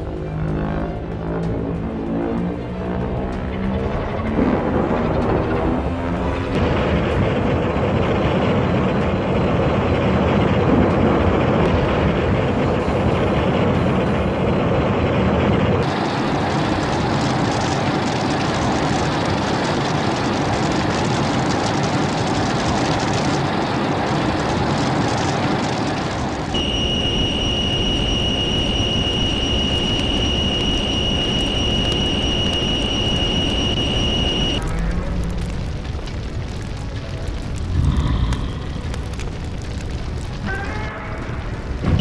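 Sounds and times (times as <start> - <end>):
loud dense rumbling: 0.0 - 42.0
high-pitched whine: 25.0 - 34.8.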